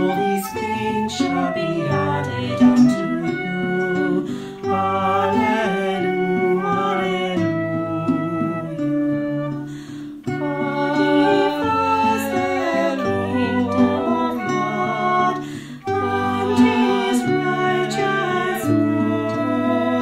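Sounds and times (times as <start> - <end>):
slow gentle music: 0.0 - 20.0.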